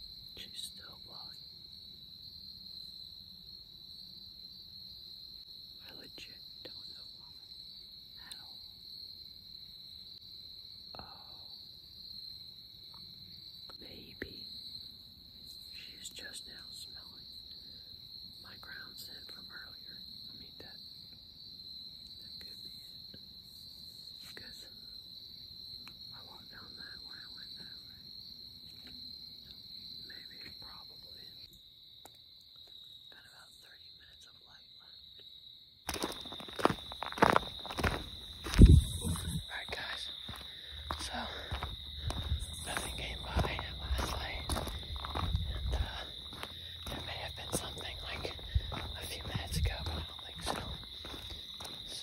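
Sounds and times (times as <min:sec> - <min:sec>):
crickets chirping: 0:00.0 - 0:52.0
insect chorus drone: 0:00.0 - 0:52.0
faint breathy sounds: 0:10.9 - 0:11.7, 0:15.5 - 0:20.8, 0:38.9 - 0:51.1
soft voice-like sounds: 0:38.6 - 0:50.8.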